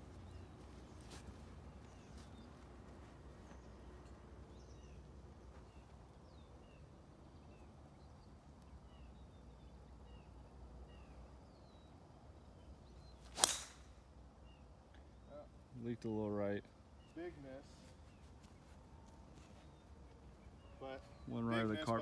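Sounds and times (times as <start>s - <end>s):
bird chirps: 0.1s - 2.6s, 3.4s - 13.8s
golf ball struck by driver: 13.3s - 14.0s.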